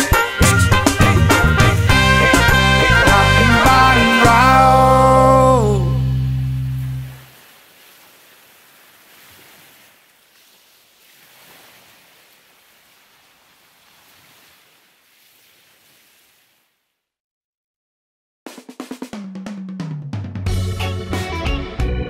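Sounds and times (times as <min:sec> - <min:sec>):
sea waves hissing: 0:06.4 - 0:16.7.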